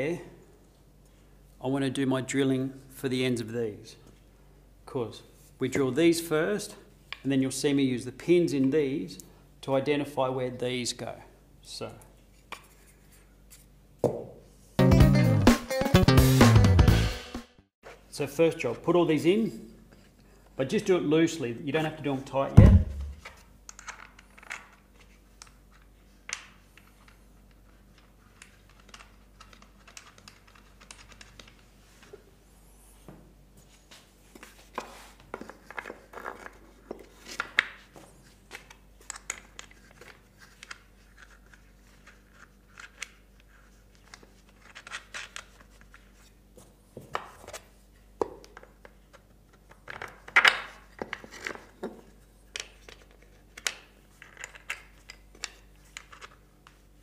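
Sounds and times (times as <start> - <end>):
wooden pieces clicking and scraping: 23.3 - 31.6, 48.5 - 56.8.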